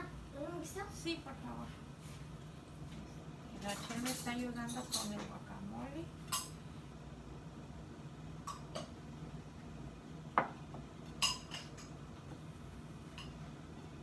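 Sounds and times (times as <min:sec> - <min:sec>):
low steady hum: 0:00.0 - 0:14.0
utensils clinking against dishes: 0:03.6 - 0:05.4, 0:06.3 - 0:06.6, 0:11.2 - 0:12.0.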